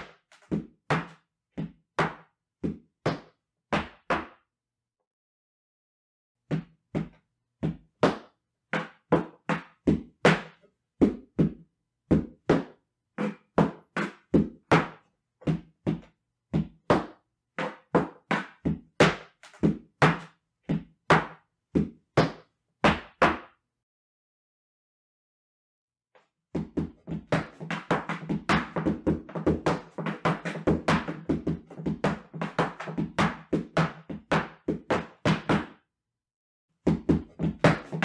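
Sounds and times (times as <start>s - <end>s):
boots striking wooden platform: 26.6s - 35.8s.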